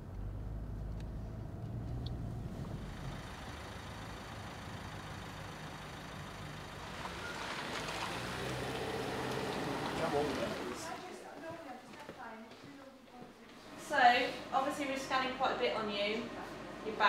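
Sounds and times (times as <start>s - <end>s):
car engine idling: 0.0s - 11.1s.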